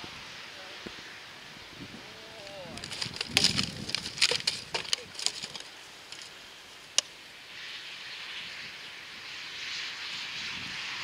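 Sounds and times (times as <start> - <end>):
hooves crackling plastic sheet: 2.4 - 6.4
airy hiss: 5.6 - 11.0.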